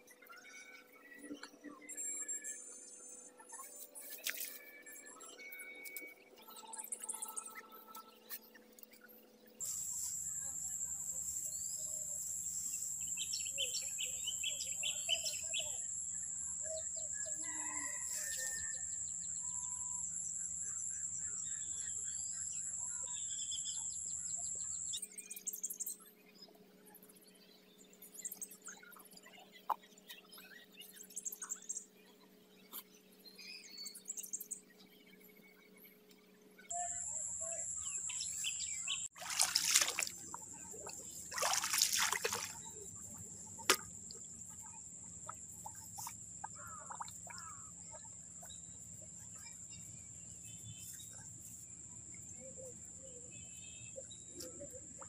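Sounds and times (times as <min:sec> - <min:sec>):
feet wading through water: 0:39.1 - 0:44.4.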